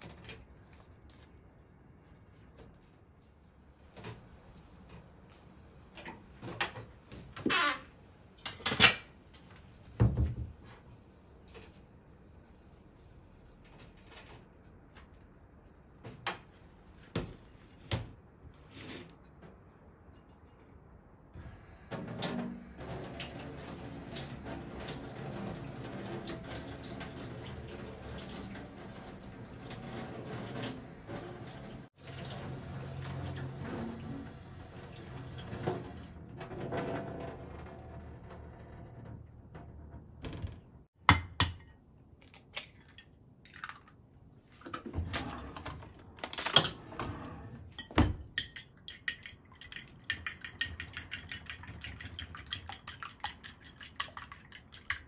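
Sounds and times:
utensil beating egg in dish: 47.8s - 55.0s.

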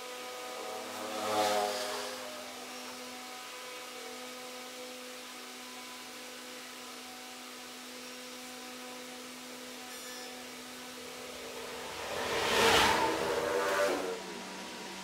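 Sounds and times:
steady hum with overtones: 8.3s - 15.0s
loud rush of noise: 10.8s - 15.0s.

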